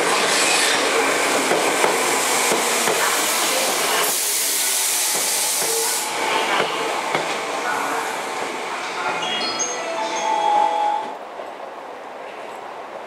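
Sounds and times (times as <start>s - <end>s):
electric train rolling past: 0.0s - 13.0s
loud hiss: 0.5s - 6.3s.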